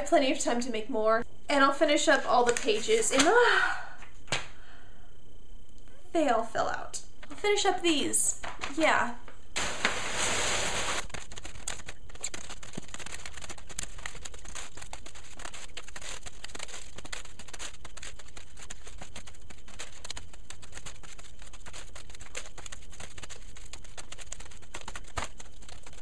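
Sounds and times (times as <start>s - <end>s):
paper rustling and crinkling: 2.0s - 3.5s, 9.6s - 26.0s.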